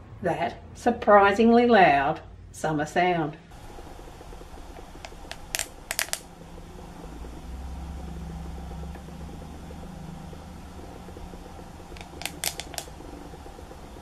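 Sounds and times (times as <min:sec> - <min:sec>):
low steady hum: 0:00.0 - 0:14.0
plastic straw clicking: 0:05.0 - 0:06.2, 0:11.9 - 0:12.9.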